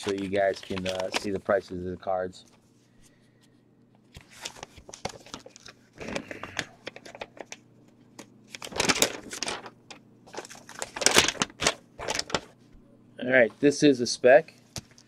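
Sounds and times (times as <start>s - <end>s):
paper envelopes rustling: 0.0s - 2.7s, 4.1s - 12.6s.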